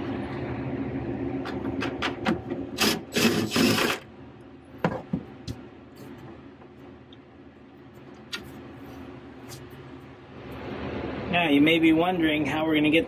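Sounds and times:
cordless power driver running: 0:02.8 - 0:04.0.

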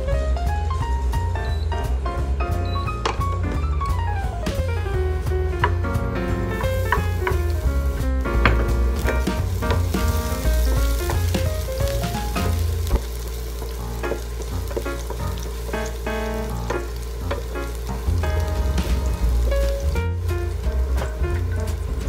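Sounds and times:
background music: 0:00.0 - 0:22.0
food sizzling in a pan: 0:06.5 - 0:22.0.

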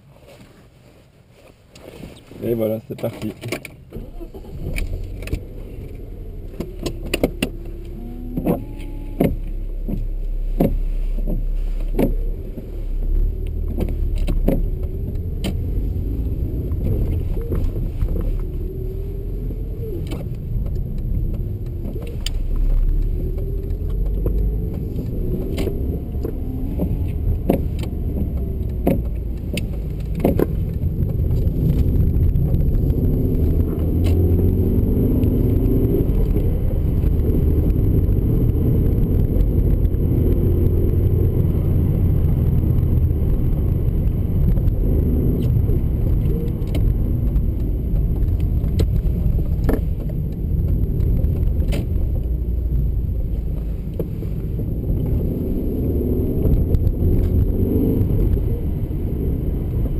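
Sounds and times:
low road rumble: 0:00.0 - 0:59.9
car engine accelerating: 0:01.8 - 0:59.9.

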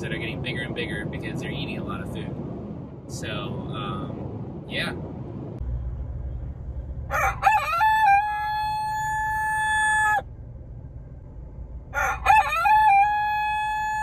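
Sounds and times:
low car rumble: 0:00.0 - 0:14.0
rooster crowing: 0:07.1 - 0:10.3, 0:11.9 - 0:14.0.

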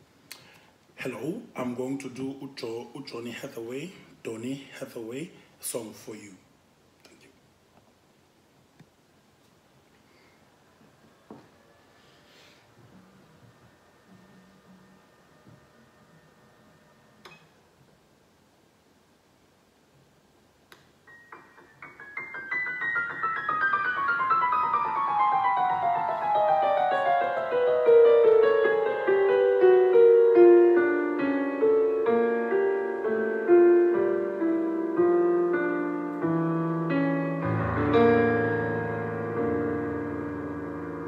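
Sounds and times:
solo piano: 0:21.0 - 0:41.0.

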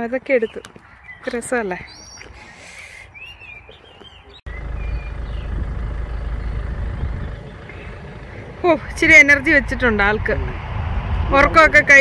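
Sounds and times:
small birds chirping: 0:00.0 - 0:09.1
loud low rumble: 0:04.5 - 0:12.0.

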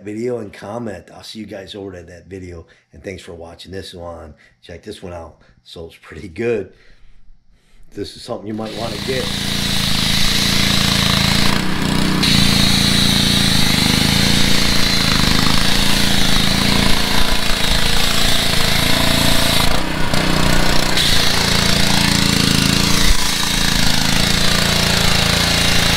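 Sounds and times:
pressure washer engine running: 0:08.5 - 0:25.9.

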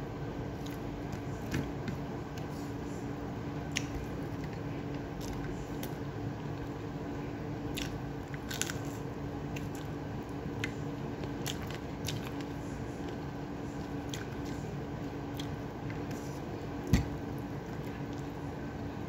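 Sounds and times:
steady low hum: 0:00.0 - 0:19.0
person chewing food: 0:00.5 - 0:02.6, 0:03.6 - 0:06.8, 0:07.7 - 0:14.7, 0:15.3 - 0:18.8
crisp crunches: 0:07.7 - 0:09.0.

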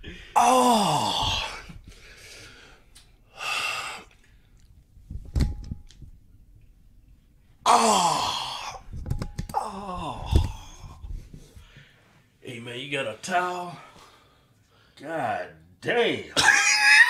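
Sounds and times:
man moaning: 0:00.2 - 0:01.7, 0:07.6 - 0:08.8, 0:09.6 - 0:10.9.

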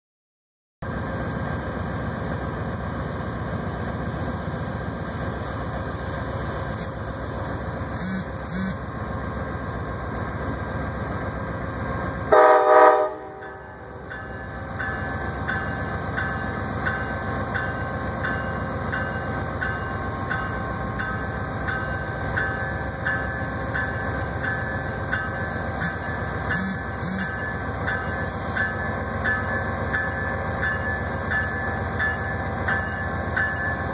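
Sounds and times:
diesel locomotive running: 0:00.8 - 0:33.9
train horn blast: 0:08.0 - 0:08.8, 0:12.3 - 0:13.4, 0:25.8 - 0:27.4
locomotive bell ringing: 0:13.1 - 0:33.9.

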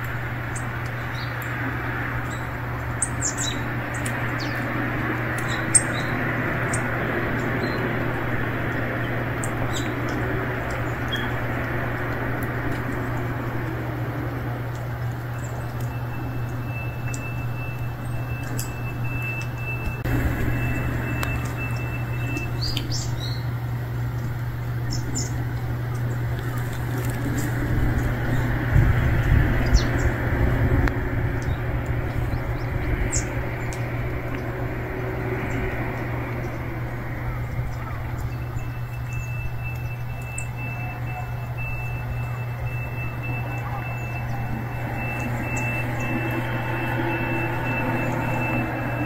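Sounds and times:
low outdoor background hum: 0:00.0 - 0:49.0
small birds chirping: 0:00.0 - 0:49.0
thin high tone: 0:32.6 - 0:49.0.

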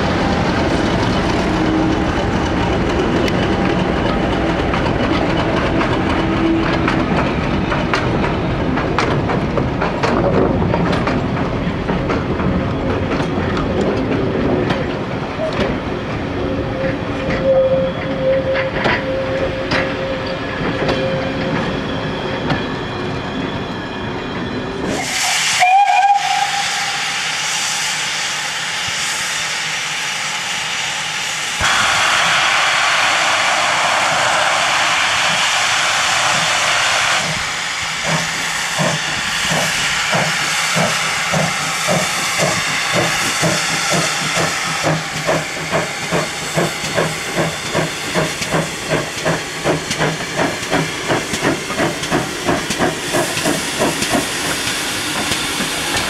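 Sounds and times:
steam locomotive chuffing: 0:00.0 - 0:56.0
wagons rolling with squeal: 0:00.3 - 0:08.7, 0:16.5 - 0:25.2
steam locomotive whistle: 0:16.5 - 0:21.6, 0:24.9 - 0:31.0, 0:31.6 - 0:45.4
steam hissing: 0:24.9 - 0:56.0.

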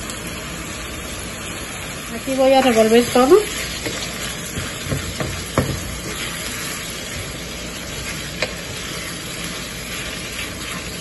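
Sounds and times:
meat sizzling in frying pan: 0:00.0 - 0:11.0
wooden spatula stirring meat: 0:02.4 - 0:07.4
spatula knocking against pan: 0:03.8 - 0:06.2.

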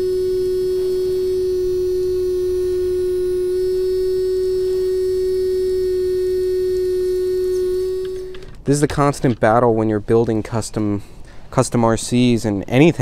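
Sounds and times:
electric pump motor whine: 0:00.0 - 0:08.6.

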